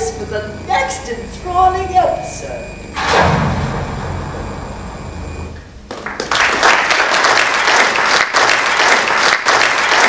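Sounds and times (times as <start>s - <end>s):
audience applauding: 5.9s - 10.0s.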